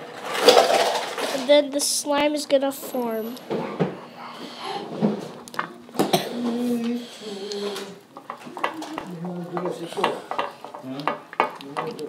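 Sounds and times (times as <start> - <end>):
spatula scraping against bowl: 7.2 - 10.8
spatula stirring slime in bowl: 7.5 - 12.0.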